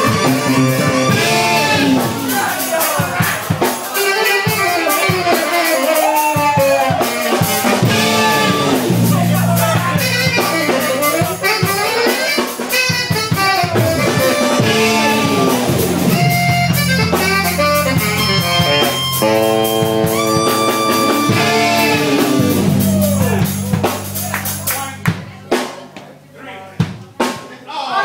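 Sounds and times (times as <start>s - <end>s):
lead melody with sliding notes: 0.0s - 3.0s, 3.8s - 25.1s
bass line: 0.0s - 3.2s, 6.8s - 12.1s, 12.9s - 25.7s
drums: 0.0s - 28.0s.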